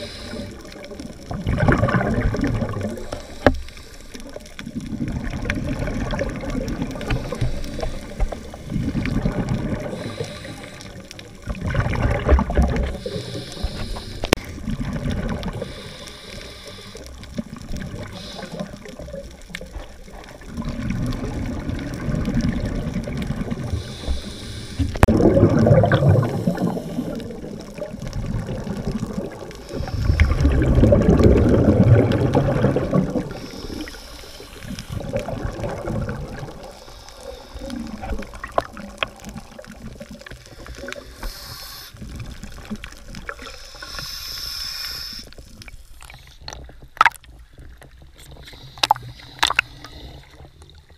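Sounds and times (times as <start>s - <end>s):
diver breathing through regulator: 0.0s - 1.0s, 2.8s - 4.4s, 7.0s - 11.4s, 12.7s - 14.6s, 15.4s - 17.2s, 18.0s - 19.0s, 23.7s - 25.1s, 26.1s - 27.7s, 29.6s - 35.2s, 36.5s - 38.4s, 40.4s - 42.4s, 43.4s - 46.6s, 48.3s - 50.6s
exhaled bubbles rushing underwater: 0.0s - 16.2s, 17.0s - 44.2s, 45.3s - 50.9s.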